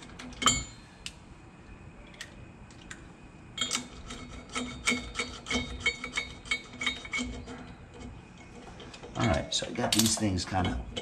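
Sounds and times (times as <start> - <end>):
metal lug nuts clinking: 8.8 - 11.0.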